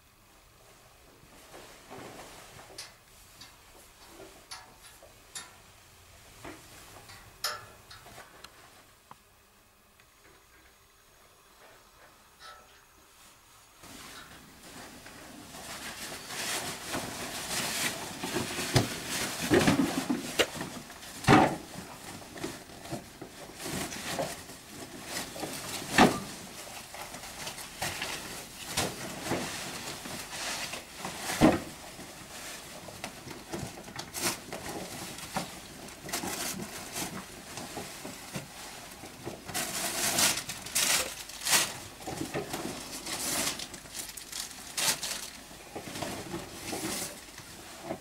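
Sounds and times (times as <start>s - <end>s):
bag rustling and handling: 13.8s - 48.0s.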